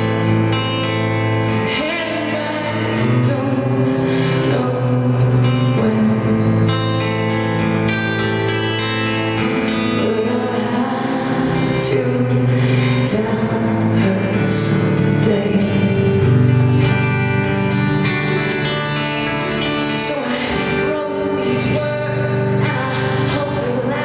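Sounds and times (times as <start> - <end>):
woman singing into microphone: 1.6 - 7.0, 9.4 - 17.2, 19.6 - 24.0.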